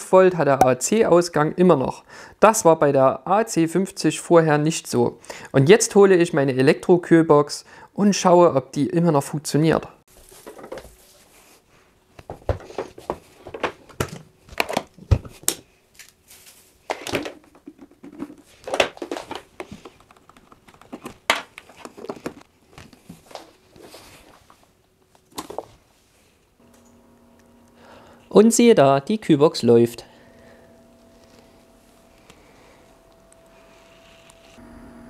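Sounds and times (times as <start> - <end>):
faint steady hum: 10.2 - 35.0.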